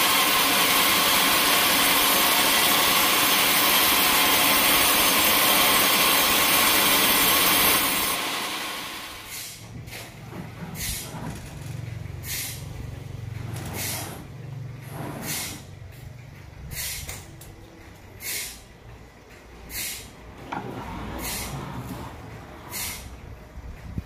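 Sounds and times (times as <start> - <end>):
machine humming: 0.0 - 9.4
short hiss: 16.7 - 17.2, 18.2 - 18.6, 19.7 - 20.1.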